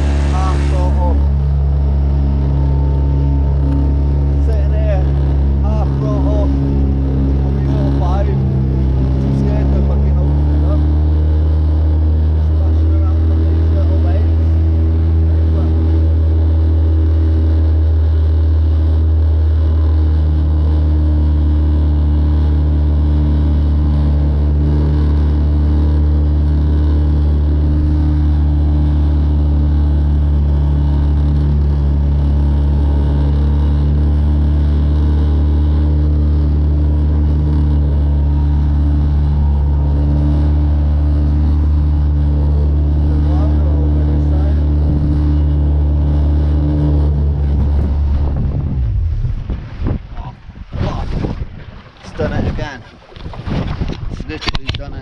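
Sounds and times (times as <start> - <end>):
outboard motor running: 0.0 - 55.0.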